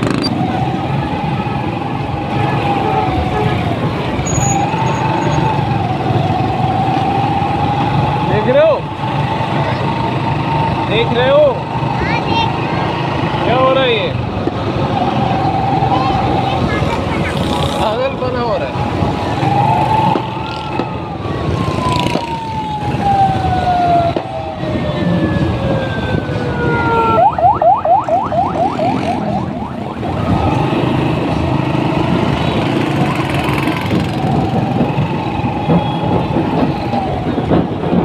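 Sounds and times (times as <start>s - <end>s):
motorcycle engines in traffic: 0.0s - 38.0s
electronic siren wailing and yelping: 19.2s - 31.0s.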